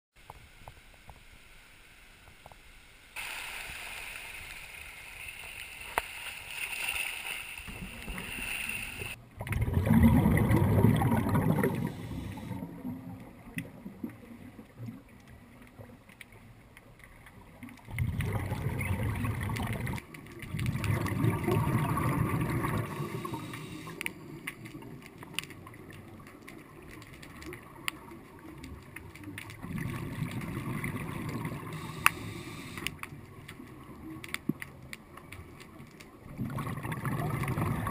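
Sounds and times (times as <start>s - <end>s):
water hiss: 0.3s - 9.2s, 11.2s - 12.6s, 21.0s - 24.6s, 30.4s - 33.0s
underwater bubbles gurgling: 3.2s - 37.9s.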